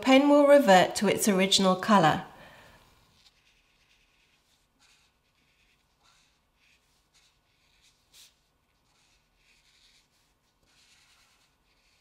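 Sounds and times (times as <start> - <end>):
brush pen scratching on paper: 2.9 - 12.0.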